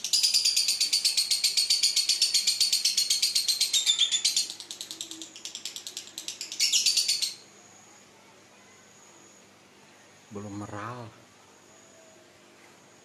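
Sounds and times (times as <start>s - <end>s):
lovebird chattering trill: 0.0s - 7.4s.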